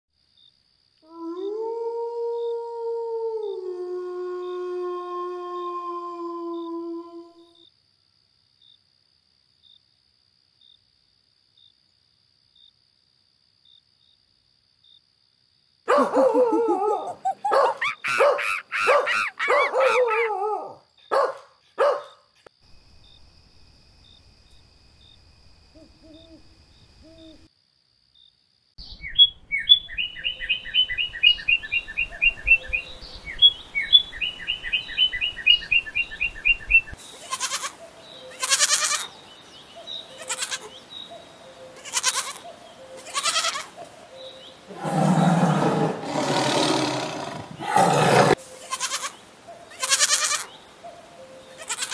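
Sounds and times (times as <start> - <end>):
dog barking: 15.9 - 22.3
sparrow chirps: 28.8 - 36.9.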